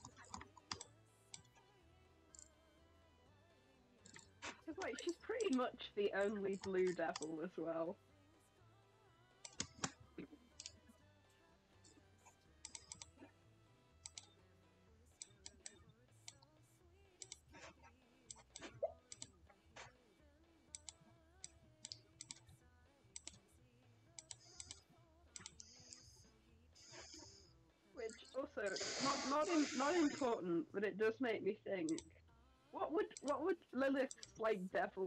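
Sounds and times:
keyboard and mouse clicks: 0:00.0 - 0:01.5, 0:06.6 - 0:07.4, 0:09.4 - 0:10.0, 0:12.6 - 0:13.2, 0:14.0 - 0:14.3, 0:20.7 - 0:22.4, 0:24.2 - 0:24.8, 0:33.1 - 0:33.4
faint background music: 0:00.0 - 0:35.0.

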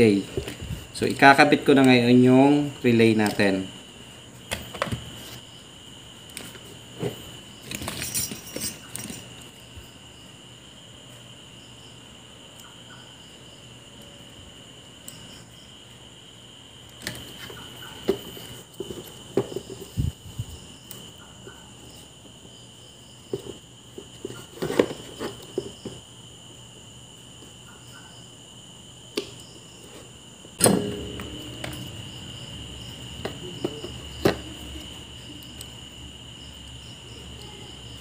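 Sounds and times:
crickets chirring: 0:00.0 - 0:38.0
small tools clicking and tapping: 0:07.6 - 0:09.4
metal clatter ringing: 0:30.6 - 0:32.6.

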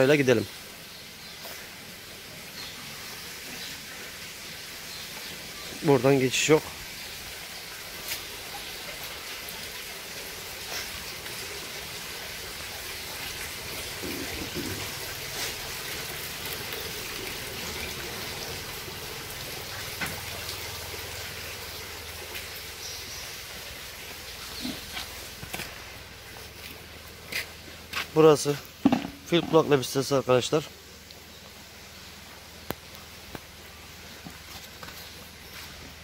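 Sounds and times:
water hissing: 0:09.9 - 0:29.4.

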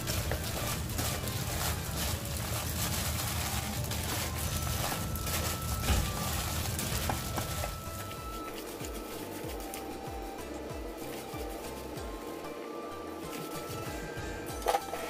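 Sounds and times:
vegetables tossed in metal bowl: 0:00.0 - 0:10.0.

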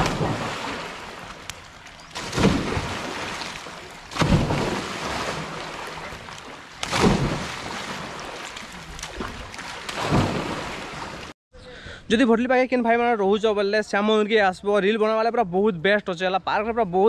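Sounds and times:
water splashing in a pool: 0:00.0 - 0:11.4.

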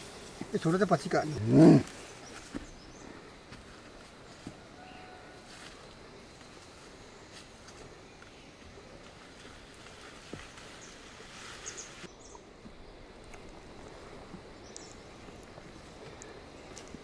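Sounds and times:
high hiss: 0:00.0 - 0:04.4.

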